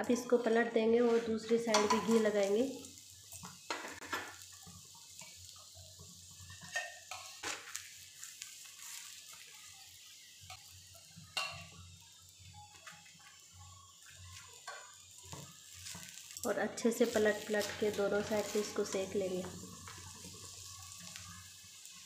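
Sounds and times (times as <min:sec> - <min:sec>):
bread sizzling on a hot pan: 0:00.0 - 0:22.0
metal spoon scraping bread and pan: 0:00.1 - 0:02.4, 0:06.3 - 0:09.4.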